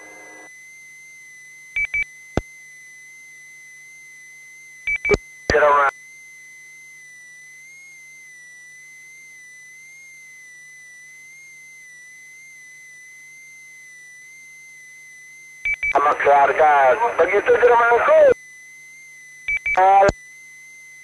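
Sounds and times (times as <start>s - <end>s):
faint hum: 0.0s - 21.0s
steady high-pitched radio tone: 5.0s - 6.0s, 15.8s - 18.4s, 19.5s - 20.2s.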